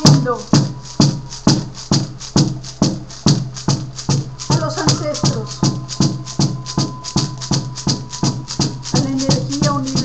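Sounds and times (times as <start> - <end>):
frame drum beating: 0.0 - 10.0
faint held tone: 4.1 - 10.0.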